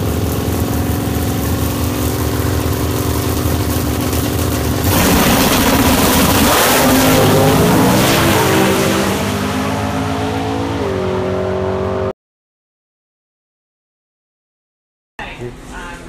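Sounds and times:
drag car engine revving: 0:00.0 - 0:12.1.

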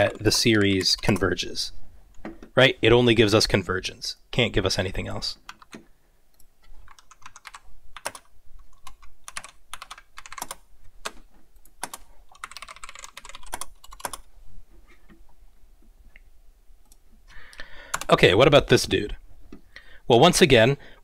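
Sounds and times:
computer keyboard typing: 0:05.4 - 0:05.8, 0:06.4 - 0:14.3, 0:17.9 - 0:18.1.

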